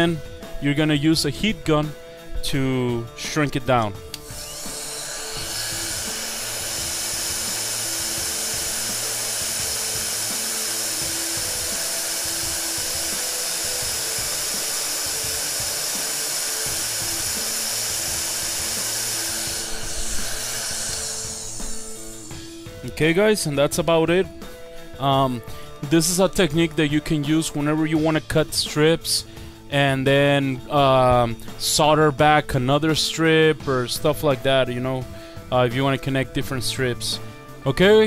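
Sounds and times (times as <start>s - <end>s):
heat gun blowing hot air: 4.1s - 23.5s.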